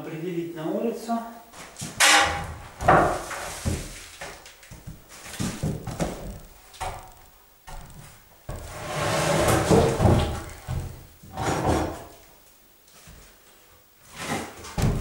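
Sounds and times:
wooden boards knocking: 0:02.0 - 0:04.0
plank sliding across boards: 0:08.5 - 0:10.4.

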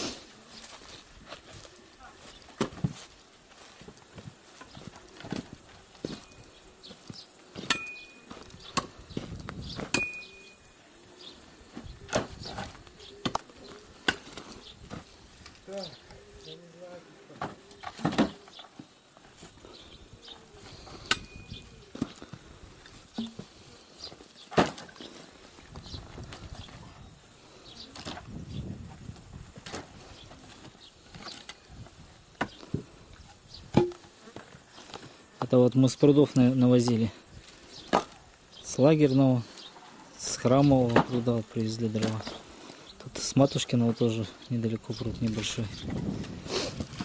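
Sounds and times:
crickets chirring: 0:00.8 - 0:47.0
firewood knocking together: 0:23.1 - 0:23.5.

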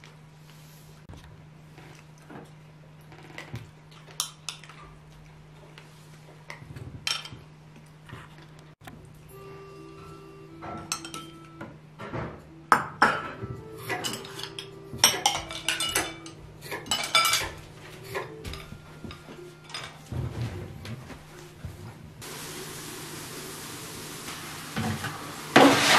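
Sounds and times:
bowls and chopsticks clinking: 0:12.9 - 0:20.0.

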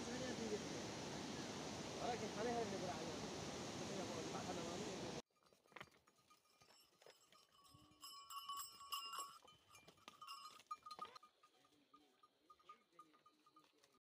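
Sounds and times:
goats walking on stony path: 0:05.4 - 0:14.0.

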